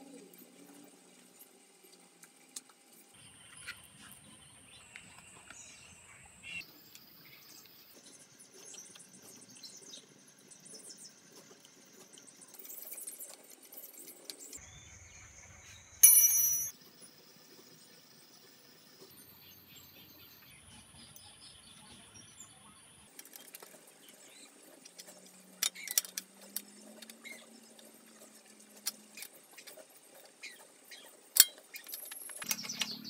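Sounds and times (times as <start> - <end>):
loud metallic ring: 16.0 - 16.7.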